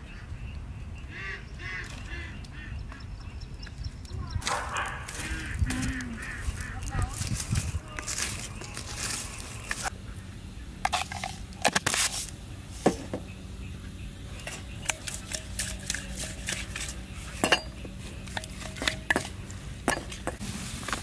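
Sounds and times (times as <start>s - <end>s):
steel bowl knocking and clinking: 14.8s - 20.4s.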